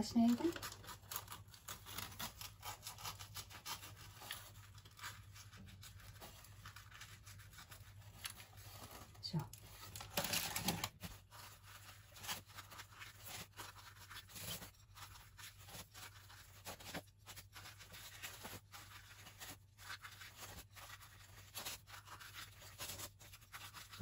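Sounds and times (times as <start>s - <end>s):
knife slicing crisp pastry: 0.4s - 9.2s.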